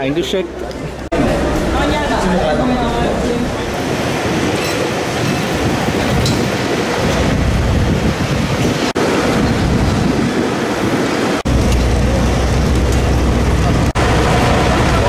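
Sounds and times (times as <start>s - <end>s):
wind noise on microphone: 3.0s - 15.0s.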